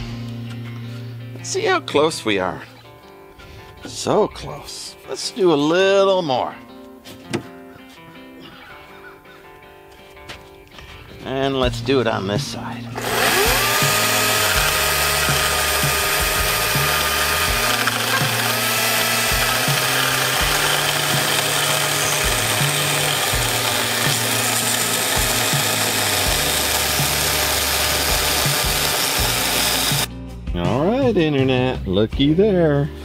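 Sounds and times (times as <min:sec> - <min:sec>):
chainsaw cutting a log: 0:13.0 - 0:30.1.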